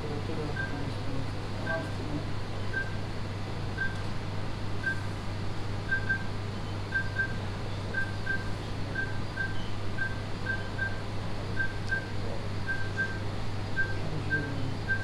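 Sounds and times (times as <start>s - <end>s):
low equipment hum: 0.0s - 15.0s
heart monitor beeping: 2.7s - 3.0s, 3.8s - 4.0s, 4.8s - 5.1s, 5.9s - 6.3s, 6.9s - 11.0s, 11.6s - 13.2s, 13.8s - 15.0s.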